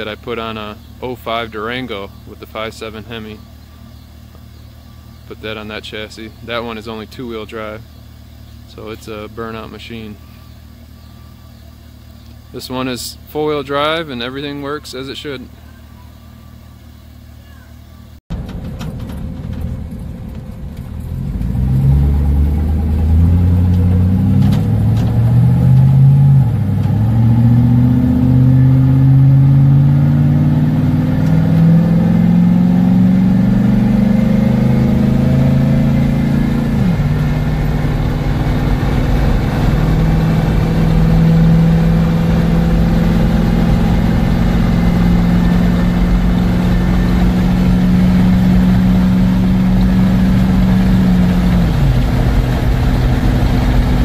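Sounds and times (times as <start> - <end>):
engine accelerating through gears: 16.2 - 54.0.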